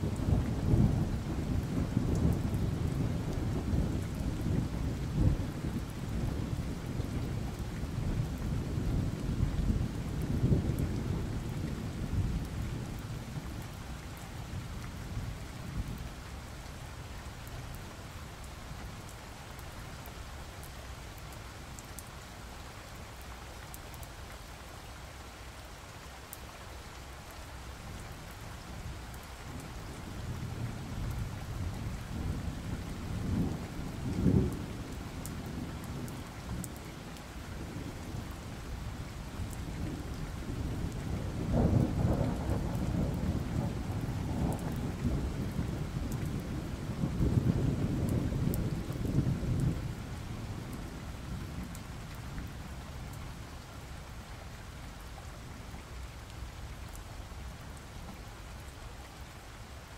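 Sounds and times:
steady rain: 0:00.0 - 0:59.9
thunder rumbling: 0:39.8 - 0:51.8.

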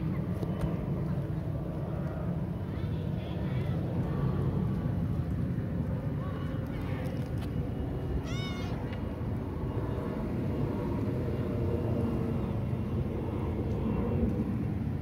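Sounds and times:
low background rumble: 0:00.0 - 0:15.0
kitten meowing: 0:08.2 - 0:08.9.

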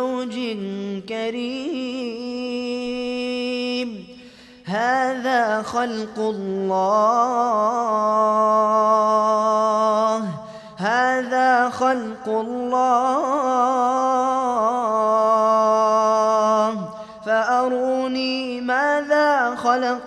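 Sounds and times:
man chanting melodically: 0:00.0 - 0:20.0
man breathing: 0:04.1 - 0:04.7, 0:10.4 - 0:10.8, 0:16.9 - 0:17.3.

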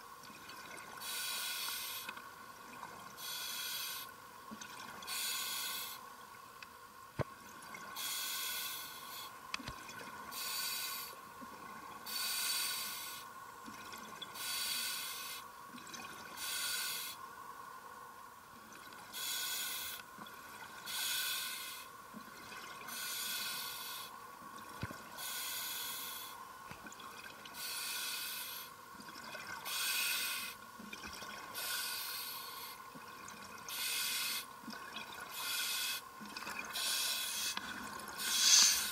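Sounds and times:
hiss and bubbles: 0:00.0 - 0:17.8, 0:18.5 - 0:38.9
diver breathing through regulator: 0:36.8 - 0:37.6, 0:38.2 - 0:38.9.

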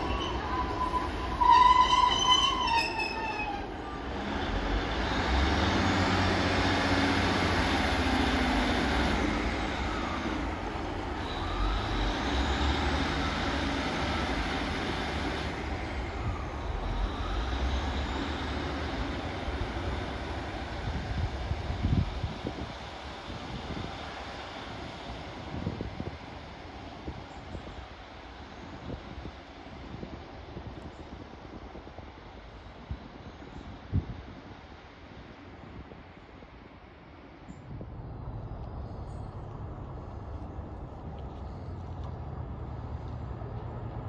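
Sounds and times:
high-pitched squeal: 0:00.0 - 0:04.0
train diesel engines running: 0:00.0 - 0:44.0.

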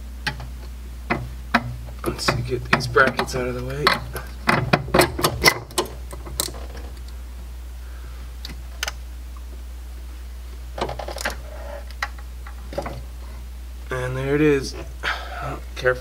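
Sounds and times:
steady low hum: 0:00.0 - 0:16.0
small clicks and light knocks: 0:00.2 - 0:07.2.

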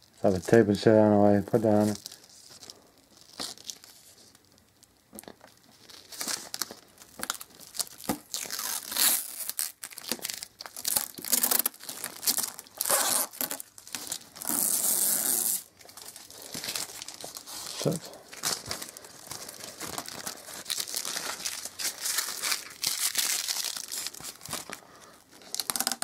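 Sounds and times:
packaging crinkling and rustling: 0:00.0 - 0:26.0
packaging tearing: 0:05.2 - 0:26.0.

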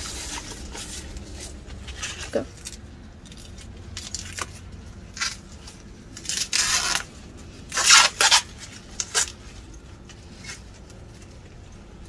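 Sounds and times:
corn husk tearing: 0:00.0 - 0:09.5.

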